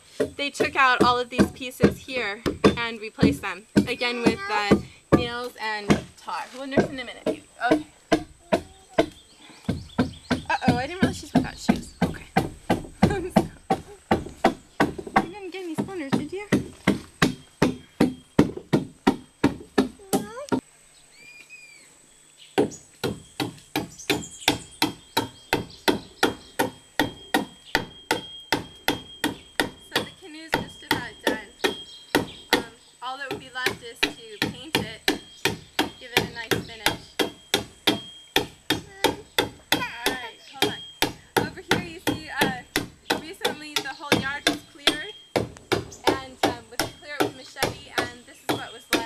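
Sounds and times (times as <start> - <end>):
hammer blows on wood: 22.6 - 49.0.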